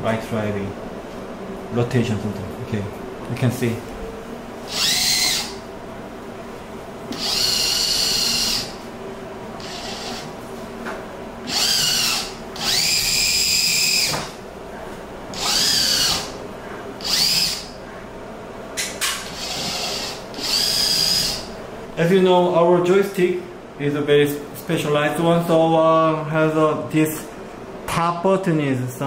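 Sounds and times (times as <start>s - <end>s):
electric drive motors whining: 4.6s - 5.8s, 7.0s - 10.4s, 11.4s - 14.5s, 15.2s - 17.8s, 19.2s - 21.7s.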